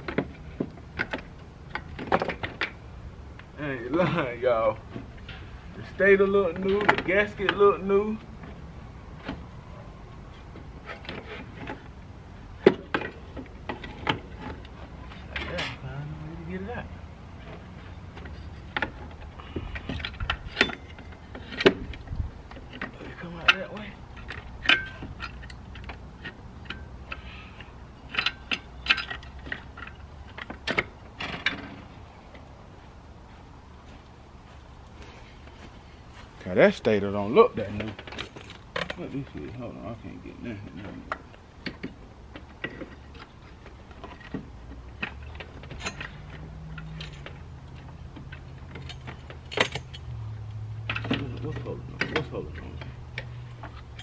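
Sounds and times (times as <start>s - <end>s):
hand tools clinking on metal parts: 17.4s - 32.0s, 37.6s - 54.0s.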